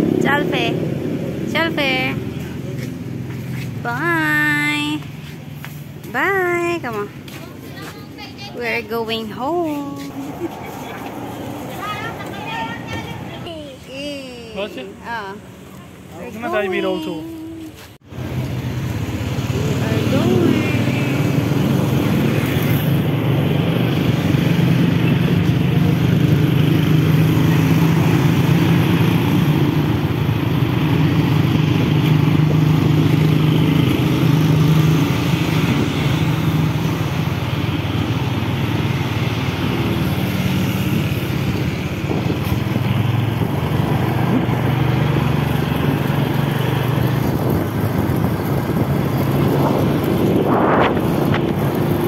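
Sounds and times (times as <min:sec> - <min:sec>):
road and wind noise: 0:00.0 - 0:52.0
small motorcycle engine running: 0:18.4 - 0:52.0.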